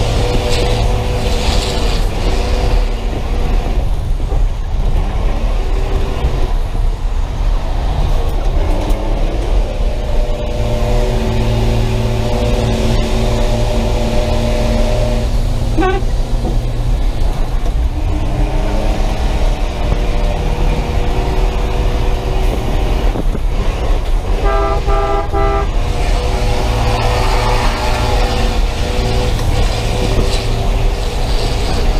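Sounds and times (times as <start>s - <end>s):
bus engine running: 0.0s - 31.9s
road noise: 0.0s - 31.9s
vehicle horn toot: 15.7s - 16.2s, 24.4s - 25.8s.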